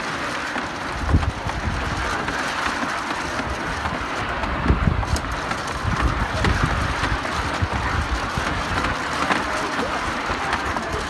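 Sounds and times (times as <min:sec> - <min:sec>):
ice shaving machine rumbling: 0:00.0 - 0:11.0.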